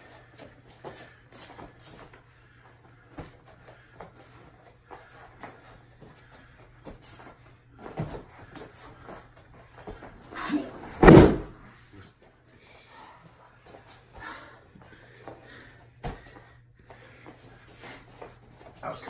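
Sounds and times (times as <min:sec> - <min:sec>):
soft scuffs and rustles: 0:00.0 - 0:10.4, 0:16.0 - 0:19.0
body thudding on mat: 0:10.9 - 0:11.6.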